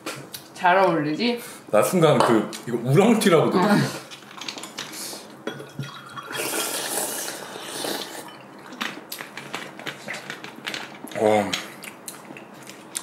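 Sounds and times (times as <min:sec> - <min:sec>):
person slurping soup: 0:06.2 - 0:08.3.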